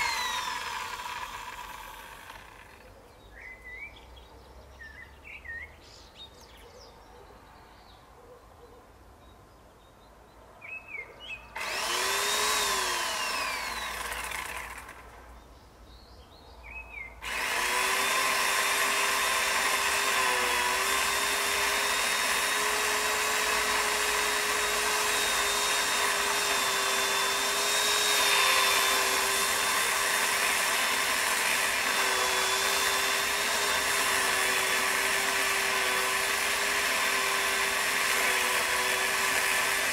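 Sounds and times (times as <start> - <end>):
power saw whining: 0.0 - 2.9, 11.6 - 15.2, 17.2 - 39.9
birds chirping: 2.6 - 11.6.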